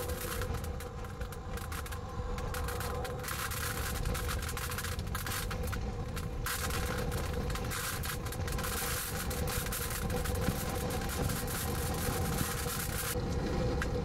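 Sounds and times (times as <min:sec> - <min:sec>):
faint vehicle hum: 0:00.0 - 0:14.0
rain spattering windows: 0:00.0 - 0:14.0
wind buffeting vehicle: 0:00.0 - 0:14.0.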